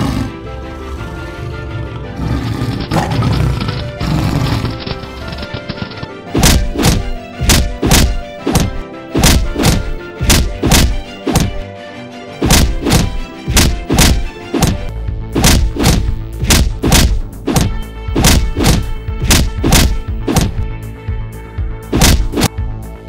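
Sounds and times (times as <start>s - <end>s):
soundtrack music: 0.0s - 23.0s
heavy regular thuds: 6.3s - 11.6s, 12.4s - 20.7s.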